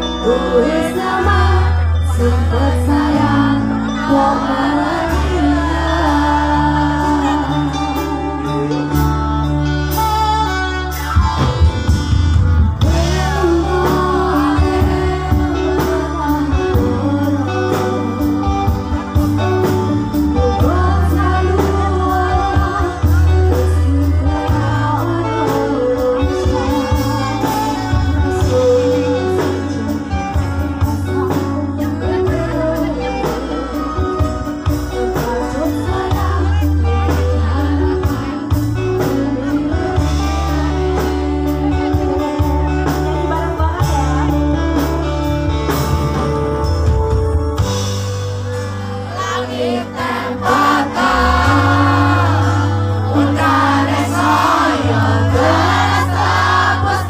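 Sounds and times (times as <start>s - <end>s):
woman singing: 0.0s - 11.2s, 12.8s - 45.8s, 48.5s - 57.0s
live rock band: 0.0s - 57.0s.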